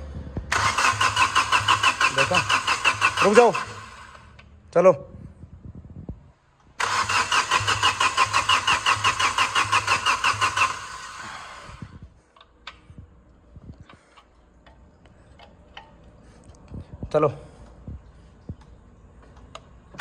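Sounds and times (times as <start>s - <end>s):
diesel engine cranking: 0.0s - 4.6s, 6.7s - 13.0s.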